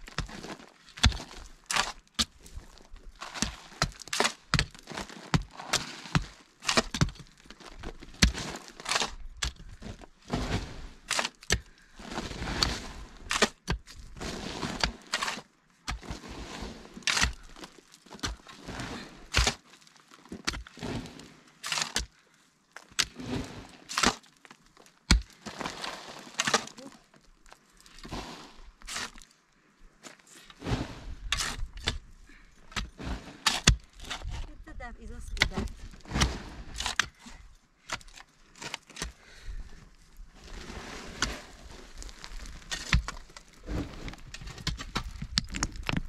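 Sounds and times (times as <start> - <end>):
hoe chopping into earth: 0.1 - 2.4, 8.1 - 9.7, 10.3 - 19.6, 20.4 - 22.1, 25.1 - 26.8, 30.6 - 32.0, 32.7 - 34.5, 35.4 - 37.2.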